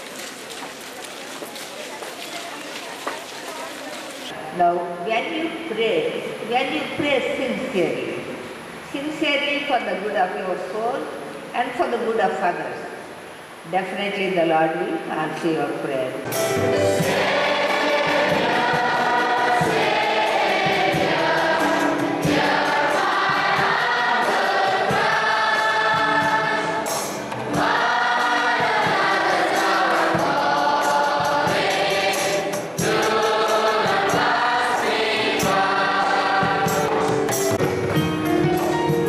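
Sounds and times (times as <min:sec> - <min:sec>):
digital piano: 0:16.3 - 0:39.0
group singing a hymn: 0:16.8 - 0:37.5.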